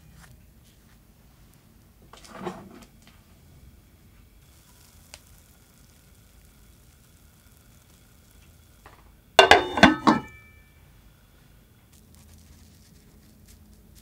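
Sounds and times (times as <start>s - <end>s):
glass lid clinking on pan: 9.4s - 10.5s.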